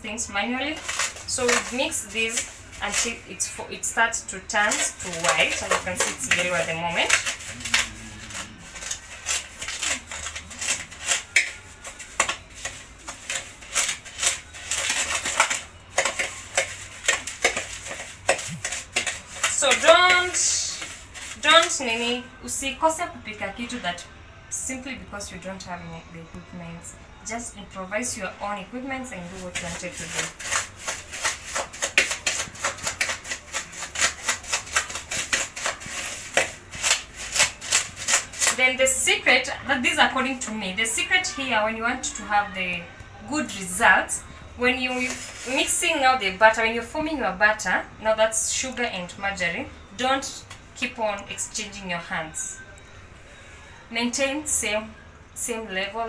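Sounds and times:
sugar grating in mixture: 0.2 - 23.0, 28.2 - 42.5, 43.3 - 47.4
spoon scraping plastic bowl: 0.5 - 22.4, 28.9 - 41.4, 44.6 - 46.3.

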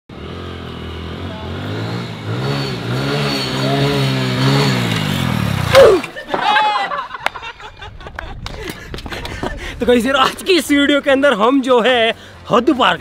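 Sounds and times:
motorcycle engine revving: 0.1 - 6.0.

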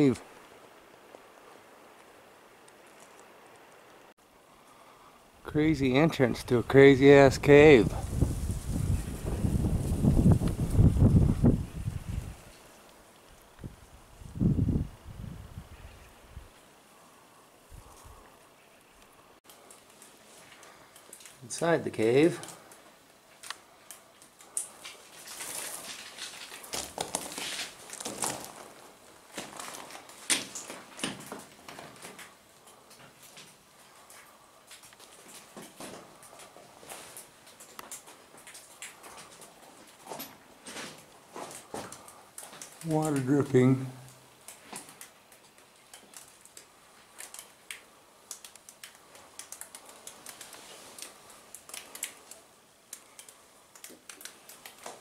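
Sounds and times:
footsteps crunching on gravel: 25.2 - 30.0.

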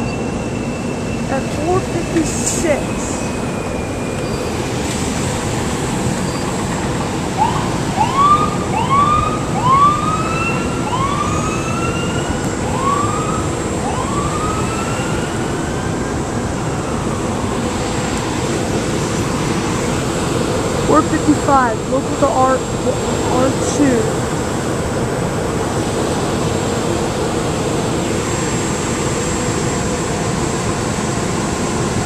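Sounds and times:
ambulance siren: 0.0 - 24.4
train passing: 0.0 - 32.0.

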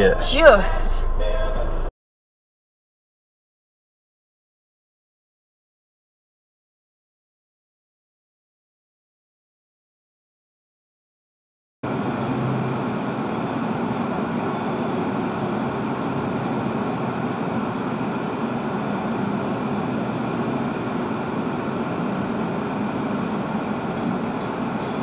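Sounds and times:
car road and engine noise: 0.0 - 1.9, 11.8 - 25.0.

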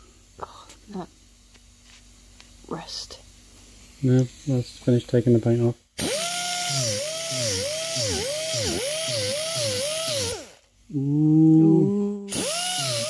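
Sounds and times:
die grinder whining: 6.0 - 10.7, 11.6 - 13.0.

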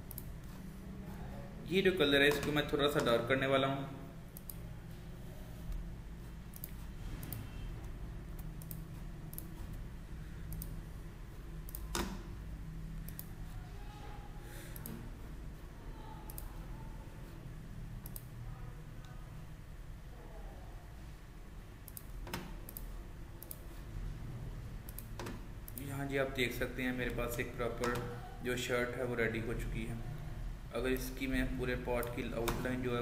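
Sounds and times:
computer mouse clicking: 0.0 - 0.6, 4.3 - 4.6, 6.4 - 9.8, 10.4 - 10.8, 11.6 - 12.3, 12.9 - 13.5, 14.7 - 15.1, 16.2 - 16.6, 18.0 - 18.3, 21.8 - 23.8, 24.8 - 26.0
steady low hum: 0.0 - 33.0.

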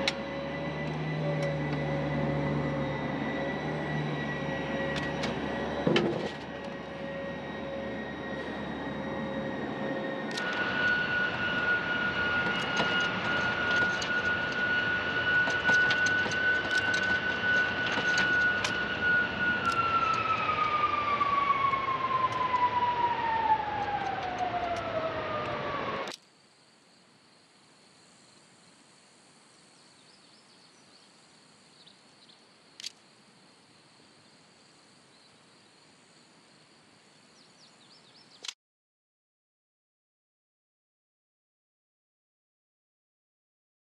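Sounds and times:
jet engine whine: 0.0 - 26.2
small clicks: 32.8 - 33.0.

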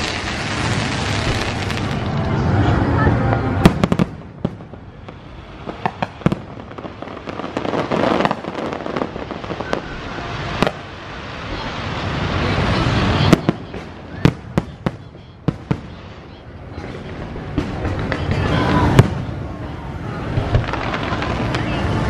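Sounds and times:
rushing crackling noise: 0.0 - 22.0
fireworks shells bursting with bangs: 3.3 - 19.5.

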